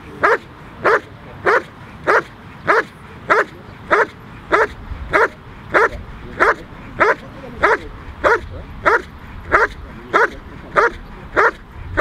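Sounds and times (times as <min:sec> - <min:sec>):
dog barking steadily: 0:00.0 - 0:12.0.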